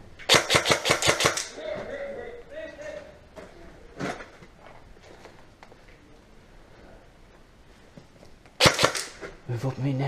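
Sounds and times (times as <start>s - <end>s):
airsoft gun rapid shots: 0.3s - 1.6s, 8.6s - 9.2s.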